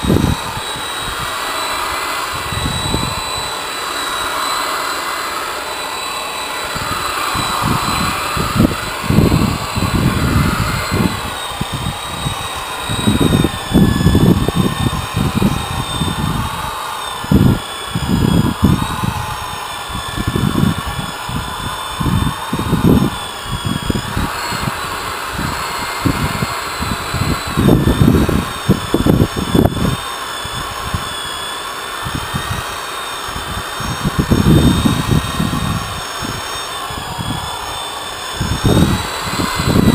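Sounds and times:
low rumbles: 0.0s - 30.0s
electric polisher whining: 0.0s - 39.9s.

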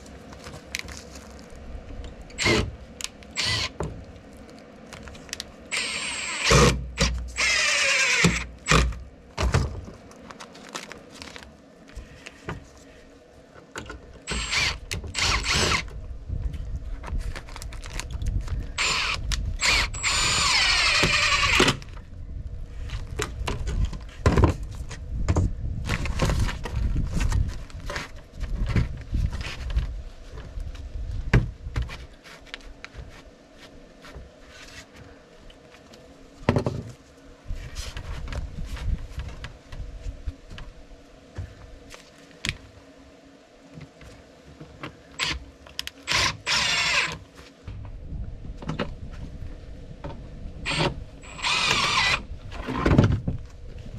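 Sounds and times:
cordless drill driving screws: 2.4s - 2.7s, 3.4s - 3.8s, 5.7s - 8.9s, 14.3s - 15.9s, 18.8s - 21.8s, 45.2s - 45.4s, 46.1s - 47.2s, 50.7s - 52.2s.

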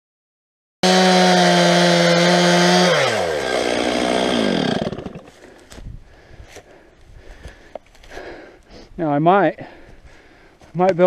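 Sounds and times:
chainsaw cutting wood: 0.8s - 5.6s.

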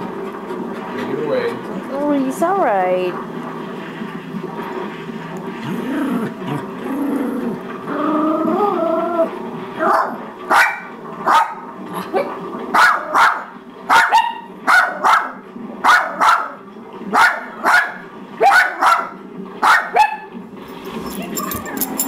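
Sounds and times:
dog barking: 9.8s - 11.6s, 12.2s - 20.3s.

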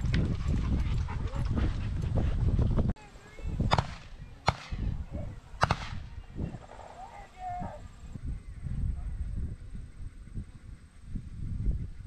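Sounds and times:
wind rumbling on microphone: 0.0s - 12.0s
sharp cracks: 3.7s - 4.8s, 5.6s - 6.1s.

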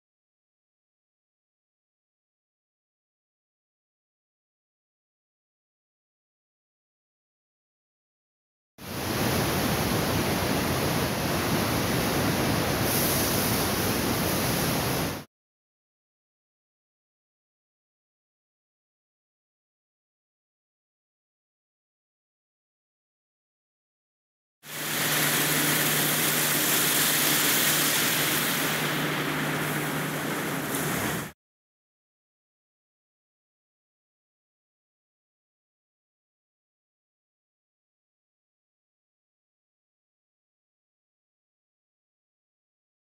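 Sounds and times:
high-pressure water jet spraying: 12.8s - 15.1s, 24.7s - 31.4s
low machine hum: 24.7s - 31.3s.

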